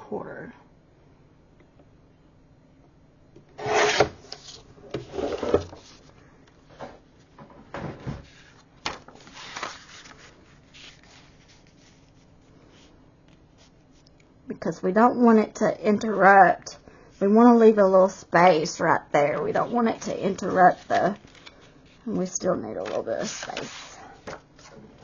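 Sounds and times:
paper rustling: 8.2 - 12.9, 19.6 - 22.1, 22.7 - 25.0.

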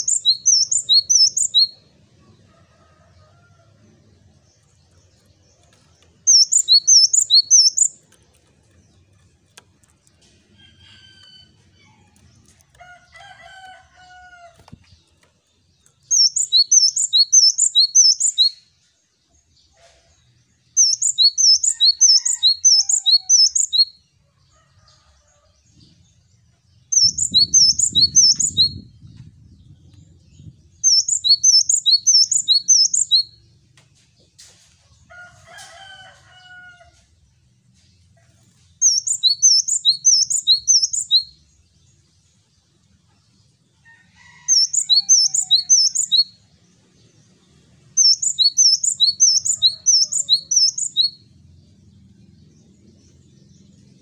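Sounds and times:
faint lower bird chirps: 16.0 - 18.7, 48.0 - 51.2.

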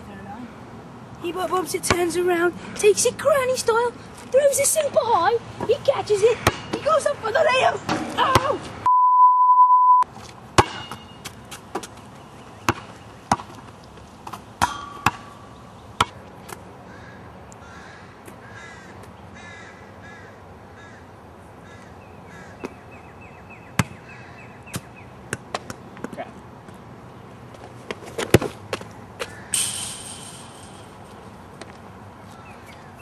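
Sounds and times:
basketball bouncing on asphalt: 1.8 - 2.2, 5.6 - 7.0, 7.9 - 8.6, 10.2 - 15.4, 16.0 - 16.6, 23.7 - 24.0, 24.7 - 26.8, 27.5 - 31.8
test-tone beep: 8.9 - 10.0
birds chirping: 16.8 - 26.0.

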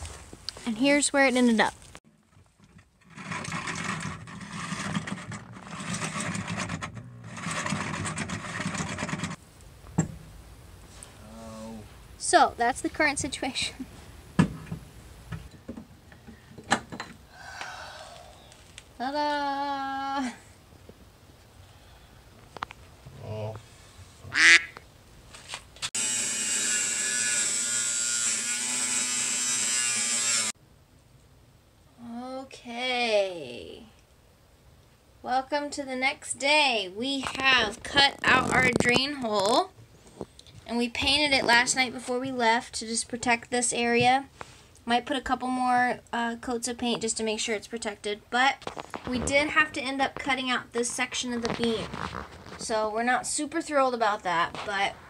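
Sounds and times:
power drill cutting sheet metal: 26.0 - 30.6.

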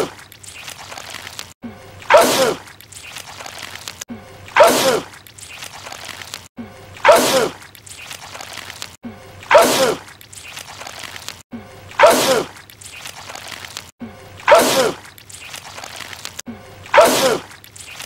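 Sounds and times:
man sneezing: 2.1 - 2.6, 7.0 - 7.6, 9.5 - 10.0, 12.0 - 12.5, 16.9 - 17.5.

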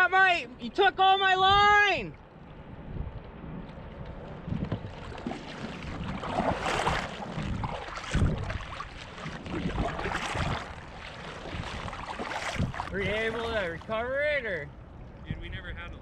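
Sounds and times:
wind rumble on microphone: 1.3 - 14.1, 14.8 - 16.0
paddle splashing in water: 4.5 - 14.0.

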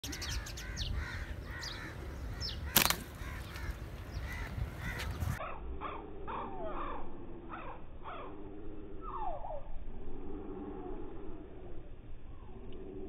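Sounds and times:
birds calling: 0.0 - 9.7
wind on microphone: 0.1 - 6.0
sharp snap: 2.7 - 3.1.

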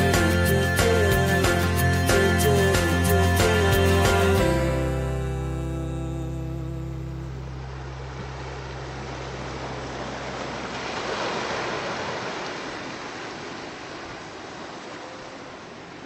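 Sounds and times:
sea surf rushing: 9.0 - 16.0.

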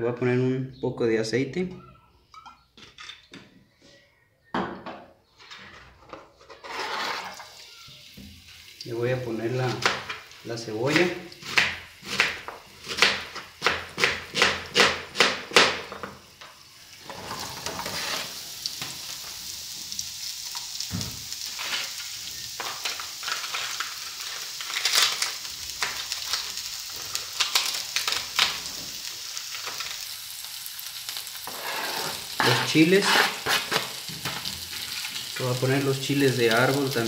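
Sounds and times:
onion sizzling in frying pan: 6.4 - 37.0
knife chopping onion on board: 11.0 - 15.9.

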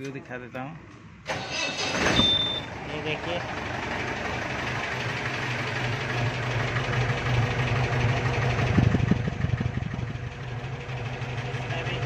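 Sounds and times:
diesel engine idling: 1.2 - 12.0
low exhaust thumps: 5.5 - 11.5.

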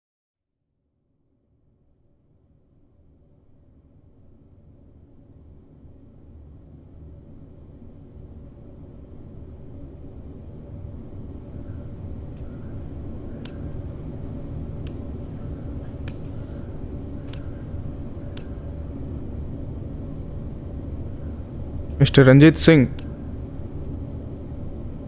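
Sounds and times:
low background rumble: 2.8 - 25.0
sharp short clicks: 16.0 - 16.6, 17.2 - 17.6, 18.3 - 18.6.

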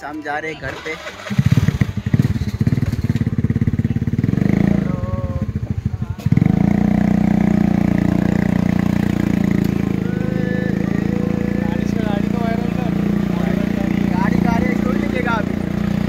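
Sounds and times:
motorcycle engine: 0.0 - 16.0.

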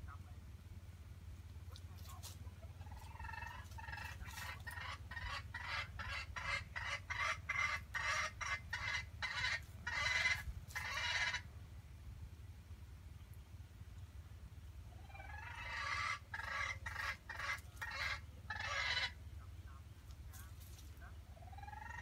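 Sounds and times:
chicken clucking rapidly: 1.6 - 11.5, 14.9 - 22.0.

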